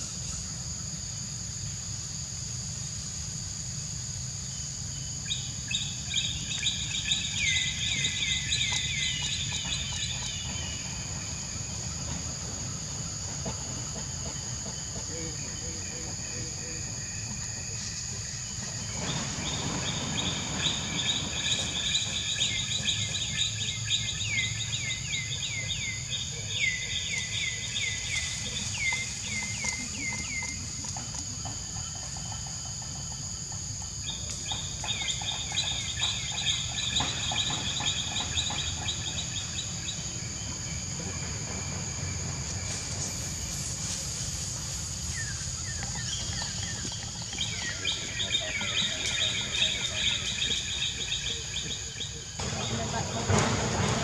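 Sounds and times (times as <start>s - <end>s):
rustle: 15.1s - 54.0s.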